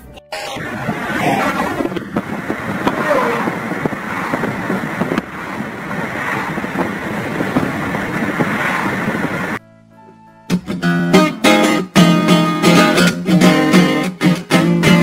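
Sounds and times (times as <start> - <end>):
car road noise: 0.0 - 9.6
wind buffeting microphone: 0.5 - 9.6.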